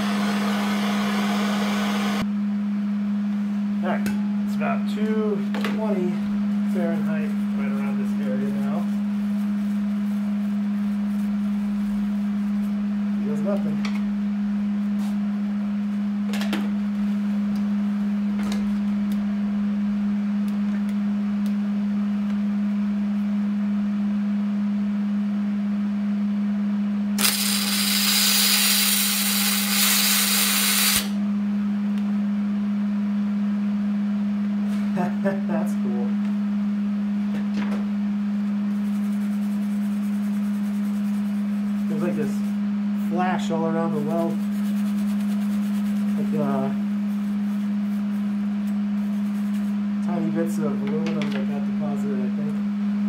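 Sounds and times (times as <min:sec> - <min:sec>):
steady hum: 0:00.0 - 0:53.0
welding arc hissing: 0:27.2 - 0:31.2.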